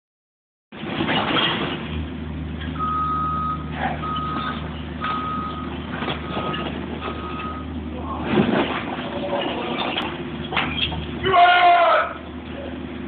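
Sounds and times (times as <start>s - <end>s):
low engine hum: 0.8s - 11.3s
vehicle reversing alarm beeping: 2.8s - 7.9s.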